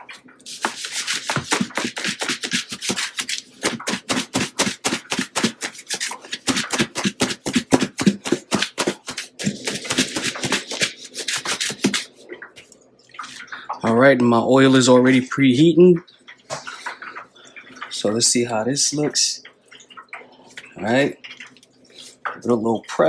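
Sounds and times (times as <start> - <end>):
meat rattling in plastic bowl: 0.6 - 12.1.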